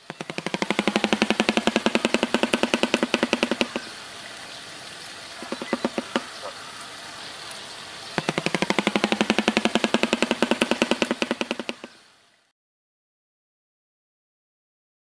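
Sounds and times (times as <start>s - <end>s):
bird bill clattering: 0.0s - 3.9s, 5.4s - 6.5s, 8.2s - 11.9s.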